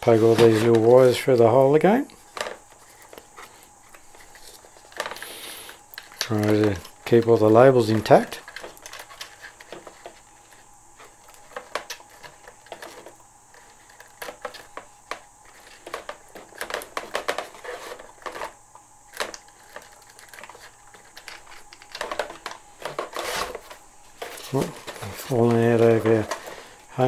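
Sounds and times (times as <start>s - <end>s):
scraping rustle: 0.0s - 1.6s, 2.2s - 27.0s.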